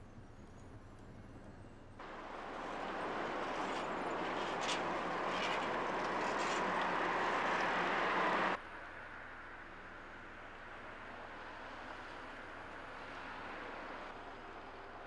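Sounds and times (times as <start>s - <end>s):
passing cars: 2.0s - 15.0s.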